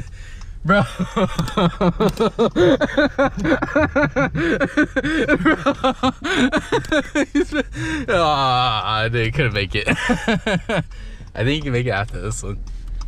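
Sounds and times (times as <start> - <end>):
car cabin rumble: 0.0 - 13.0
hearty laughter: 0.7 - 8.6, 9.8 - 11.0.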